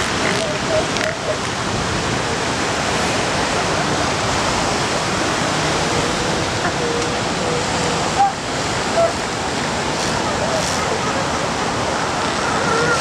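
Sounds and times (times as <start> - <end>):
surf washing: 0.0 - 13.0
seal pups calling: 0.2 - 1.5, 6.0 - 9.2, 12.3 - 13.0.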